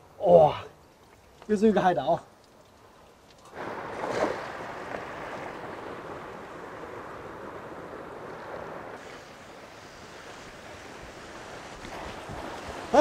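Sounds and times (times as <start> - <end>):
waves breaking over rocks: 3.5 - 13.0.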